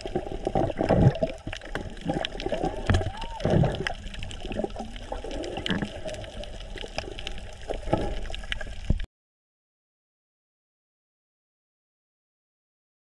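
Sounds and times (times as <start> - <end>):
underwater bubbling: 0.0 - 9.1.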